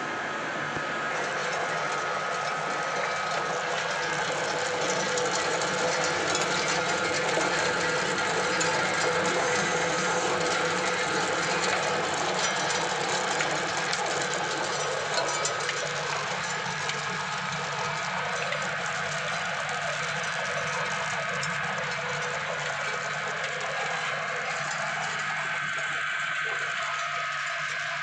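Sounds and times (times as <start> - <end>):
pellet mill machine hum: 0.0 - 28.0
pellets rattling onto metal: 1.2 - 17.3.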